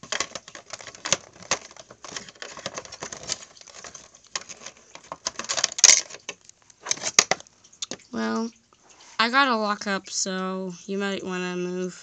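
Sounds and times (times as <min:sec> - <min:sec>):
plastic toys clicking and rustling: 0:00.0 - 0:08.1.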